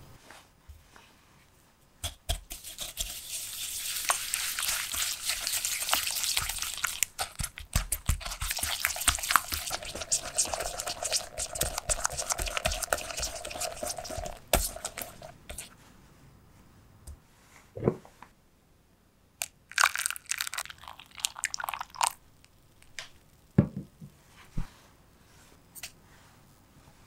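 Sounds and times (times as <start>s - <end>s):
whisk beating in glass bowl: 2.3s - 15.7s
milk pouring and splashing: 2.6s - 15.7s, 19.7s - 22.2s.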